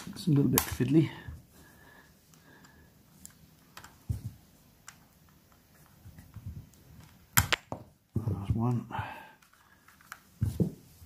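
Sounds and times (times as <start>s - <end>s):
plastic parts clicking and tapping: 2.6s - 7.9s.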